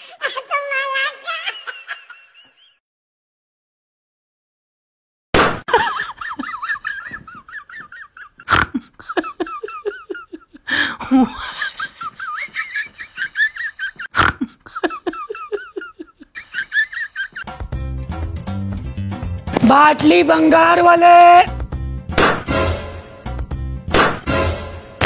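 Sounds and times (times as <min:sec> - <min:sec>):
hearty high-pitched laughter: 0:00.1 - 0:02.8, 0:05.7 - 0:17.5
background music: 0:17.4 - 0:25.0
sharp knocks: 0:22.1 - 0:22.5, 0:23.9 - 0:24.3.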